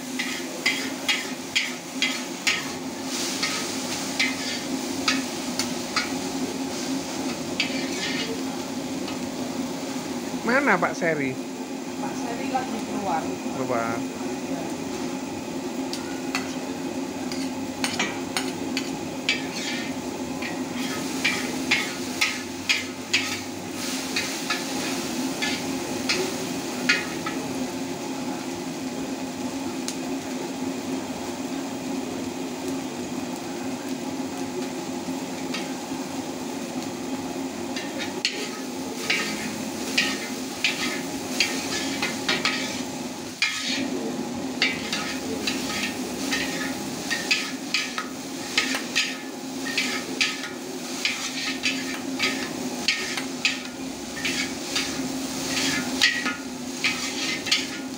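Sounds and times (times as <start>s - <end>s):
metal spatula scraping a wok: 0.0s - 8.4s, 17.2s - 26.3s, 37.8s - 44.0s, 44.6s - 57.9s
frying sizzle: 0.0s - 57.9s.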